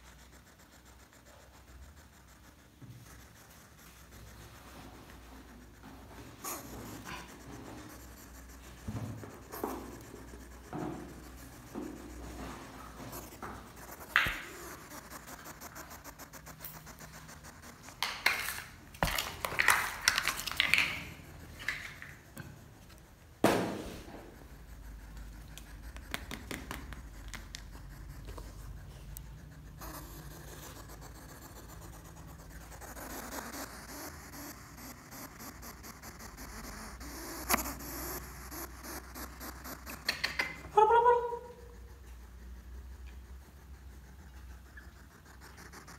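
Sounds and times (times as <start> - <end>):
scratchy rustling and clicking: 0.0 - 23.4, 24.0 - 40.7, 41.7 - 45.9
sharp knock: 23.4 - 24.0.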